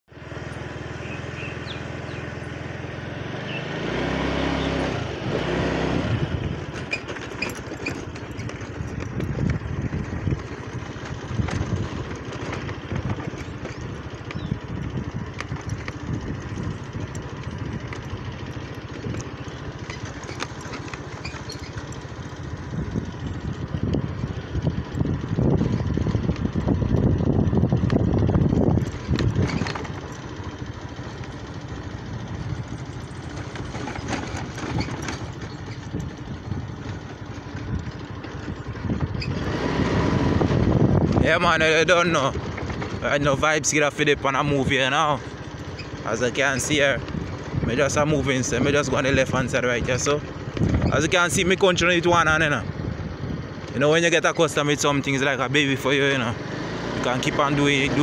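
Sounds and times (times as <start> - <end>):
scooter engine running: 0.1 - 58.0
knocks and rattles: 6.5 - 24.3, 27.7 - 39.5, 44.7 - 52.3.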